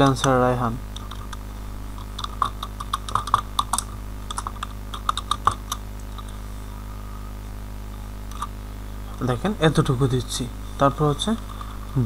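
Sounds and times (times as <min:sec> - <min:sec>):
keyboard typing: 0:00.0 - 0:01.4, 0:02.0 - 0:06.3
low hum: 0:00.0 - 0:12.0.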